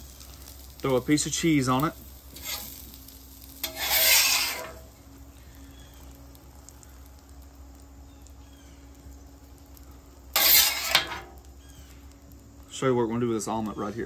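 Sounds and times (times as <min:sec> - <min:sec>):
metal spatula scraping griddle: 0:02.3 - 0:04.9, 0:10.3 - 0:11.4.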